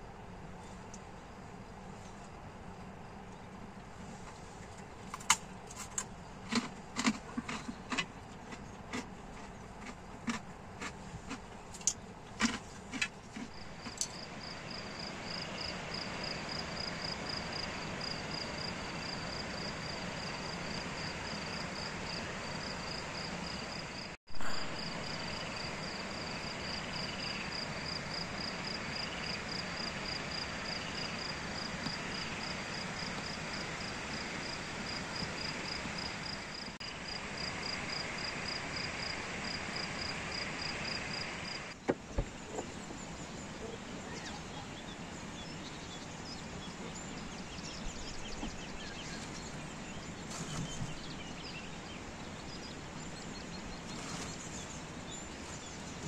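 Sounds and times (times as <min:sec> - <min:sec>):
outdoor background hiss: 0:00.0 - 0:56.0
cricket chirping: 0:05.8 - 0:44.7.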